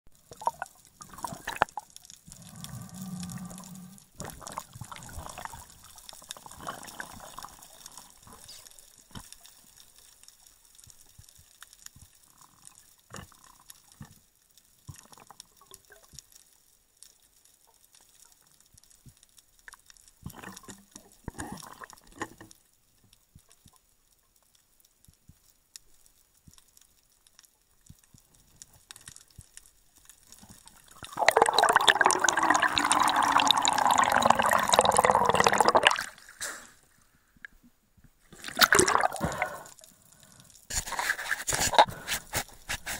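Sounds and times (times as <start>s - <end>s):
muffled underwater movement: 30.4s - 42.9s.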